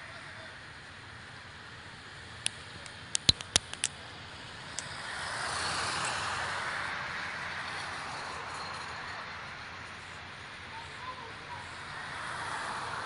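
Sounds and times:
sharp pops: 2.4 - 4.0
car driving past: 4.6 - 9.9, 11.8 - 13.0.

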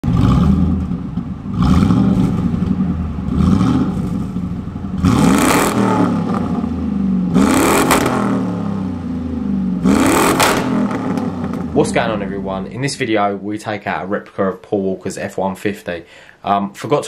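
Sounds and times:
pickup engine revving: 0.0 - 13.1.

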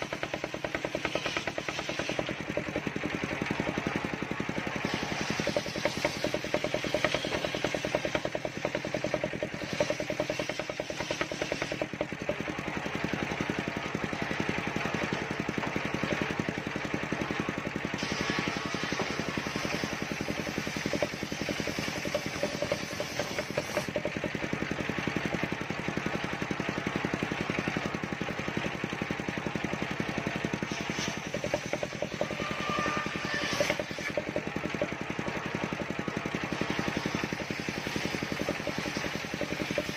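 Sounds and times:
circular saw ripping a log: 0.0 - 12.8, 17.9 - 24.5, 30.4 - 35.8, 36.5 - 39.9.

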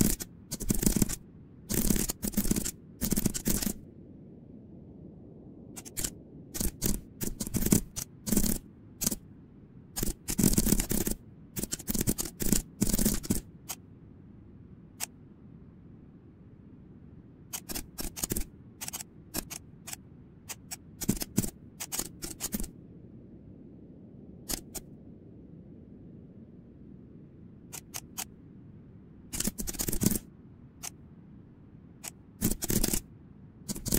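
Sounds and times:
computer keyboard typing: 0.0 - 3.8, 5.8 - 9.2, 10.0 - 13.8, 17.5 - 22.7, 24.5 - 24.8, 27.7 - 28.3, 29.3 - 31.0, 32.0 - 33.0, 33.7 - 33.9.

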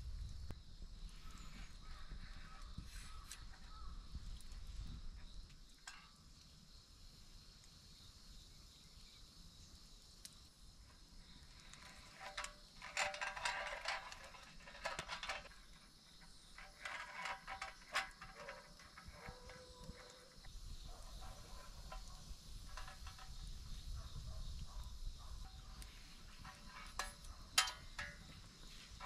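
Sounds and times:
wire and hook clicking: 16.4 - 23.4, 25.4 - 28.4.

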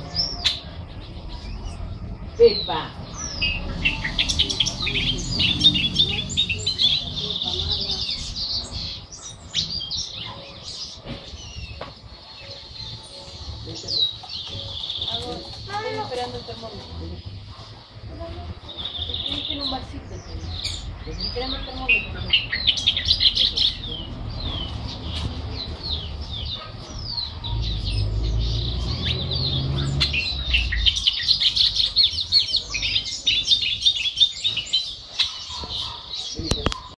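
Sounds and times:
songbird singing: 0.0 - 37.0.

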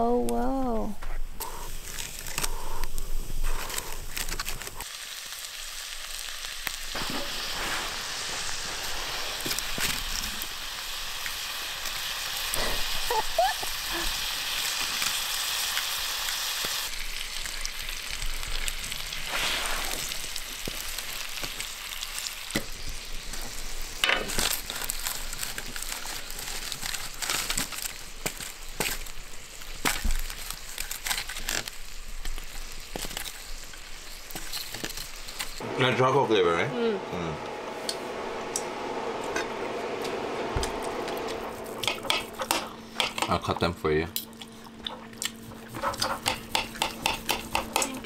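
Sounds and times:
fire popping and crackling: 1.3 - 35.6
steaks sizzling on a grill: 1.5 - 35.6.

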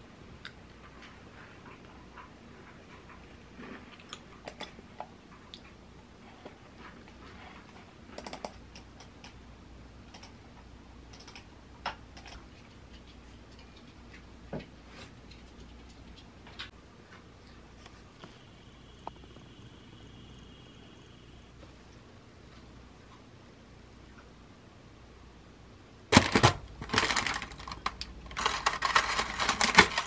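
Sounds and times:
computer mouse clicking: 4.4 - 4.8, 8.1 - 9.4, 10.1 - 10.4, 11.1 - 12.4
laptop keyboard typing: 8.1 - 9.4, 10.1 - 10.4, 11.1 - 11.5, 12.1 - 12.5.

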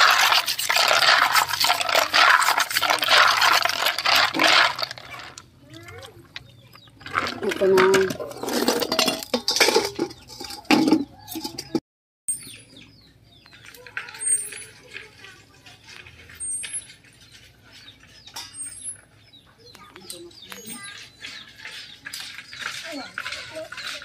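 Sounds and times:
snail shells clinking in water: 0.0 - 11.8
faint high bird chirps: 12.3 - 14.8, 15.4 - 24.0.

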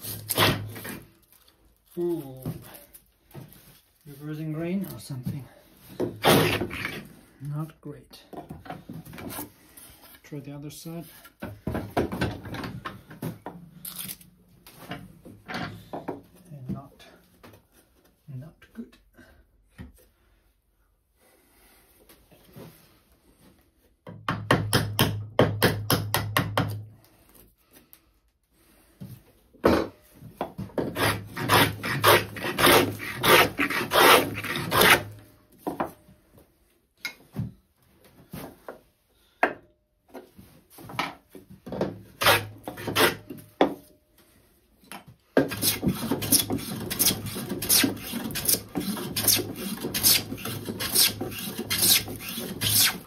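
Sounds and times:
hand plane cutting wood: 6.2 - 7.1, 30.8 - 35.2, 42.2 - 43.3, 45.4 - 53.0.

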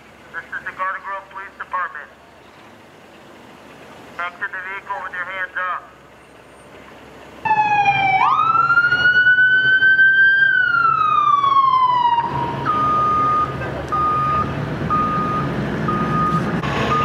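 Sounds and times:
low engine rumble: 0.0 - 17.0
siren wailing: 7.4 - 17.0
reversing alarm beeps: 12.6 - 17.0.

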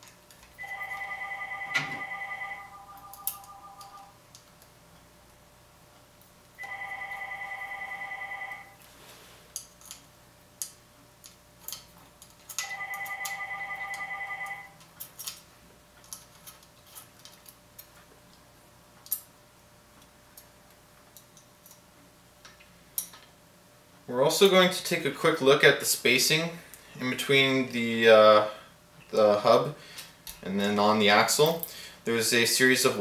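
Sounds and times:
telephone ringing: 0.6 - 4.2, 6.6 - 8.8, 12.6 - 14.8.

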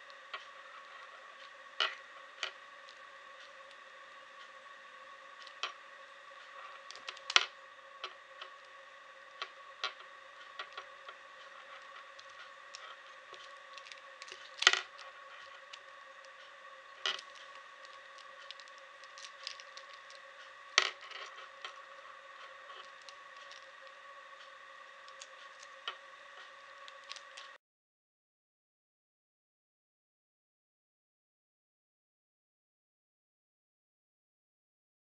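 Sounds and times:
faint steady hum: 0.0 - 27.6.

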